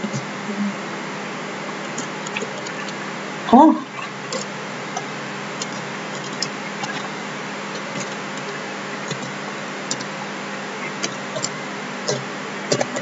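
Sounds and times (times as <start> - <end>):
microphone hiss: 0.0 - 13.0
keyboard and mouse clicks: 9.1 - 10.1.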